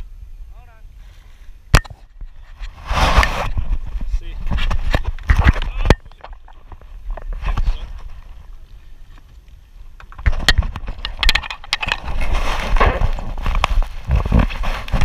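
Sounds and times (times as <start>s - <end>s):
camera handling knocks and rubbing: 4.4s - 8.1s.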